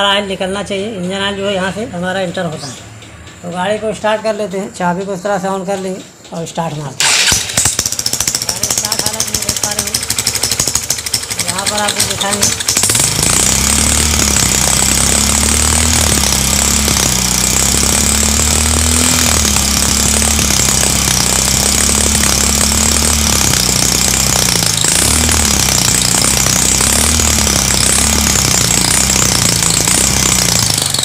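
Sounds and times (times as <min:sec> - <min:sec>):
loud mechanical knocking: 0:07.0 - 0:31.0
motorcycle engine running: 0:07.0 - 0:31.0.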